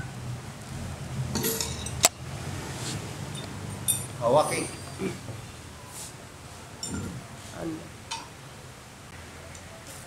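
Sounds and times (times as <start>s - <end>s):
man murmuring: 5.0s - 5.3s.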